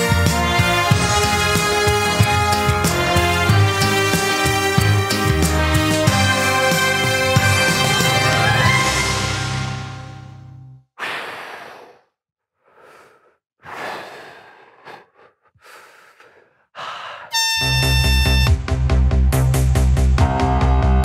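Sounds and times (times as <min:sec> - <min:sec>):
music: 0:00.0 - 0:10.8, 0:17.4 - 0:21.0
man breathing heavily: 0:11.0 - 0:17.4
electronic music with beat: 0:17.4 - 0:19.5.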